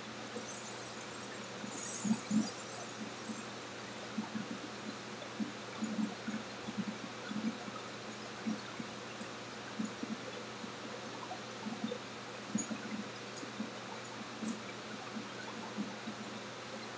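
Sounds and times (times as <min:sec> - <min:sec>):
kitchen exhaust hood hiss: 0:00.0 - 0:04.8.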